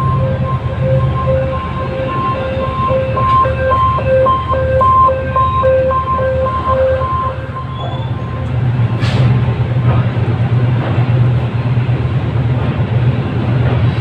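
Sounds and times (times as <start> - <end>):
electronic two-tone warning beep: 0.0 - 8.6
train rumbling past: 0.0 - 14.0.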